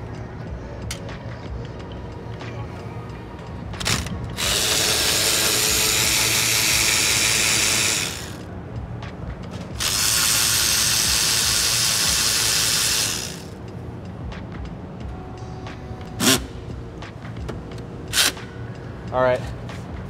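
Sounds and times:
power ratchet running: 3.8s - 8.4s, 9.8s - 13.6s, 16.2s - 16.5s, 18.1s - 18.4s.

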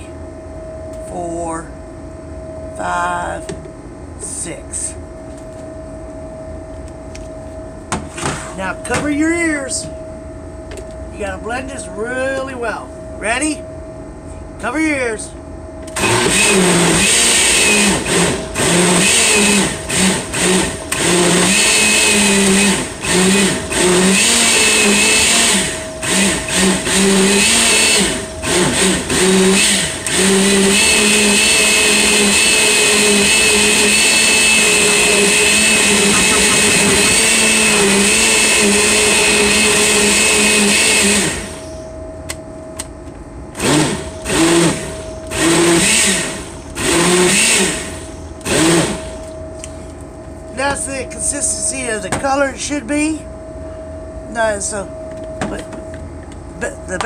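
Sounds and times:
electric blender running: 16.0s - 41.8s, 43.6s - 49.2s.

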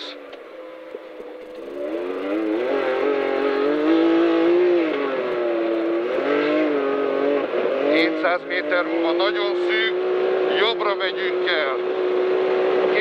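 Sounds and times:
engine accelerating hard: 0.8s - 13.0s.

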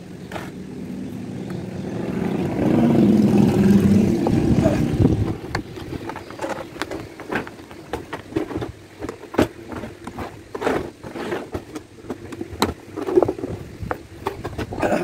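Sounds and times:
suitcase shell rustling: 5.2s - 15.0s.

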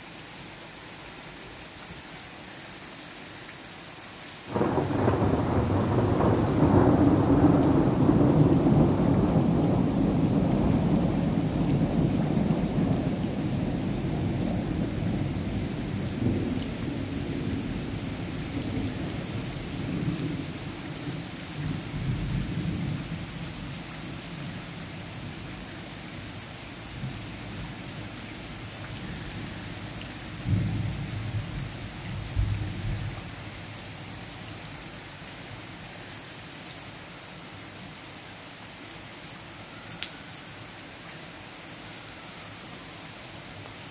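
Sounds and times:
steady rain: 0.0s - 43.9s
rolling thunder: 4.5s - 20.3s.

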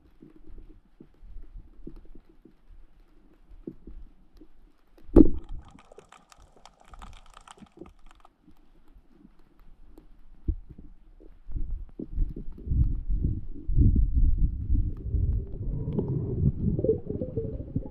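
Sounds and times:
rapid clicking and crackling: 0.0s - 13.0s
soft low underwater knocks: 11.5s - 17.9s.

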